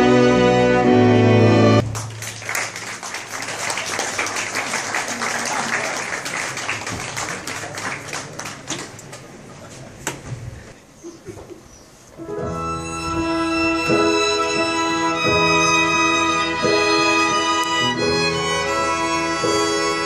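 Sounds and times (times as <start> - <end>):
string orchestra with keyboard: 0.0 - 1.9, 12.2 - 20.0
audience applauding: 1.8 - 9.5.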